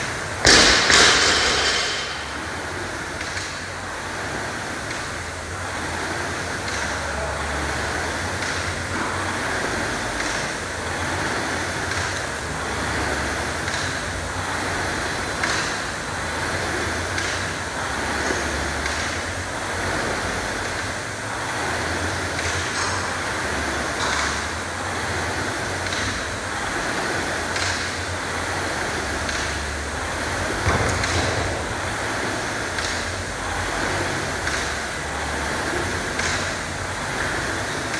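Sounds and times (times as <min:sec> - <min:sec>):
rowing machine fan whooshing: 0:00.0 - 0:37.9.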